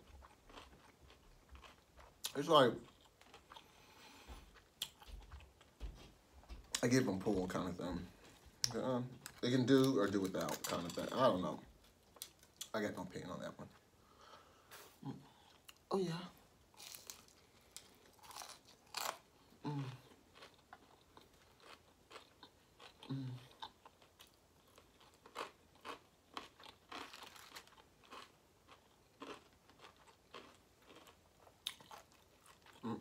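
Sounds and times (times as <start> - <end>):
crunchy chewing: 0.0 - 5.7, 16.7 - 33.0.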